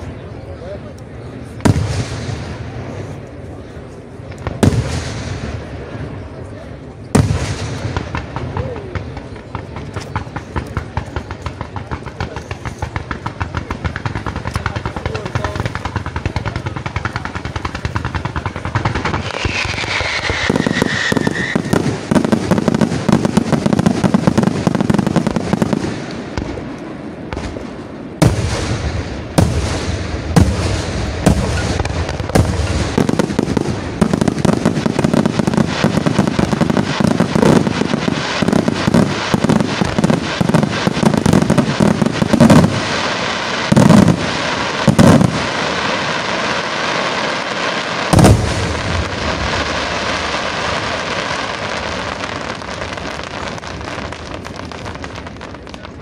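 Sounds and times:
fireworks crackling volleys: 0.0 - 56.0
firework bangs: 1.3 - 56.0
firework falling whistle: 19.0 - 22.2.

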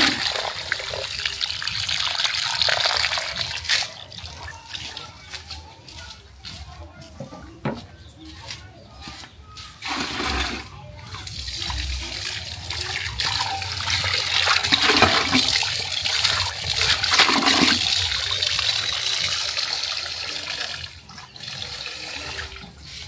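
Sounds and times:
water pouring into plastic bucket: 0.0 - 5.2, 9.8 - 23.0
tap water splashing into pot: 9.8 - 19.6.

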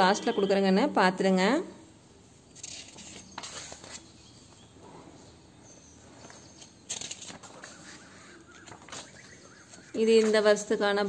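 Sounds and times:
book pages turning: 2.5 - 4.7, 6.2 - 10.7.

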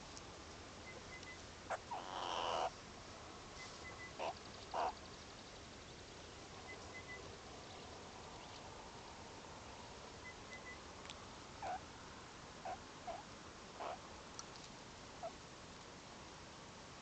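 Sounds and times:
meerkats calling: 0.9 - 2.7, 3.8 - 5.0, 11.6 - 11.8, 13.8 - 14.0.

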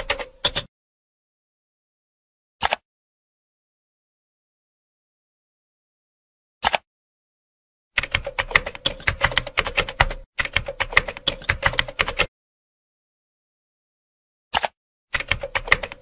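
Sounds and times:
keyboard typing: 0.0 - 0.7, 8.0 - 12.3, 14.5 - 16.0
single click: 2.6 - 2.8, 6.6 - 6.9, 14.5 - 14.8.

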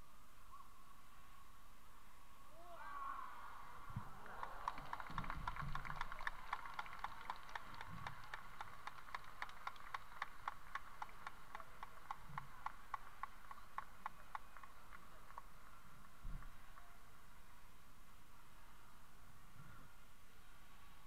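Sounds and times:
low crowd hum: 0.0 - 21.0
crowd clapping in unison: 4.0 - 16.9.

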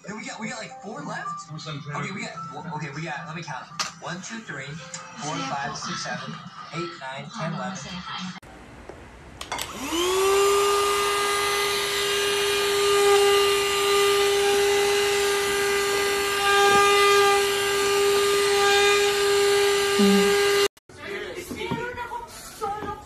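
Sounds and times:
vacuum cleaner motor whine: 8.6 - 20.7.

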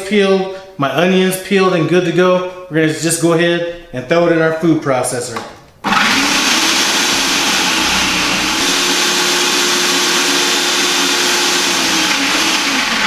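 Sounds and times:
food processor grinding: 5.8 - 13.0.

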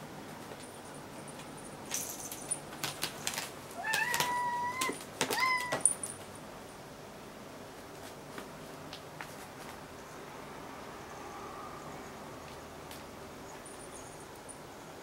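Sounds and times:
cat meowing: 3.8 - 5.8.

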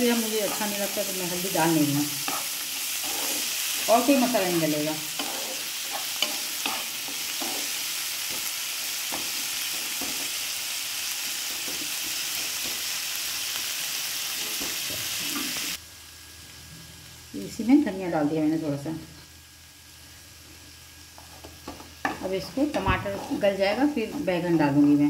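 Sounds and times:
masala sizzling in oil: 0.0 - 25.0
wooden spatula scraping pan: 2.2 - 7.8, 21.2 - 24.5.

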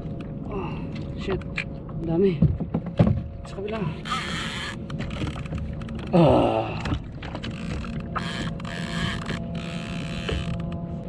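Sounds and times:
fishing reel gears whirring: 4.0 - 6.0, 7.4 - 10.8.

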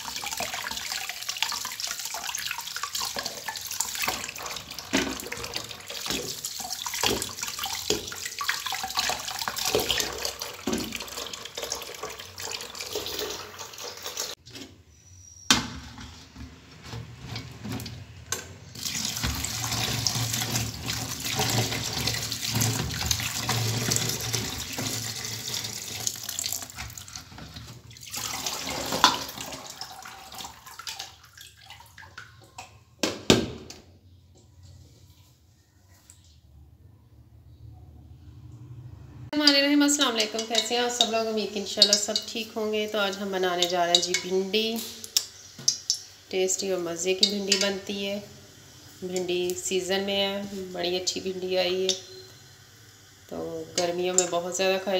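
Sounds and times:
tap water splashing in sink: 0.0 - 14.4, 17.3 - 33.8, 40.2 - 42.3.

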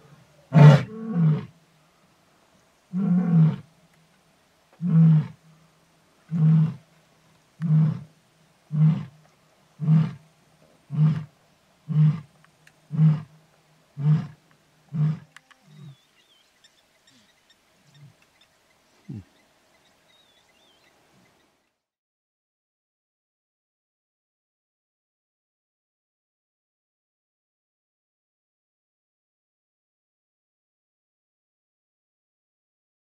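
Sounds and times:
lion grunting: 0.5 - 1.5, 14.0 - 16.0, 19.0 - 19.4
faint bird chirps: 15.3 - 21.8.

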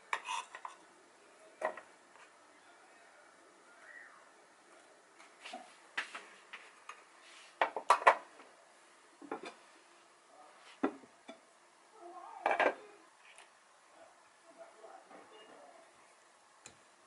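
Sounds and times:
kitchenware knocking and clinking: 7.6 - 8.2, 12.4 - 12.8.

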